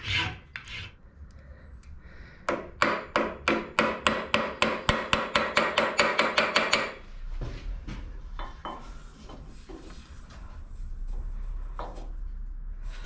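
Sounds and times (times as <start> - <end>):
hammer tapping on steel: 2.5 - 7.0.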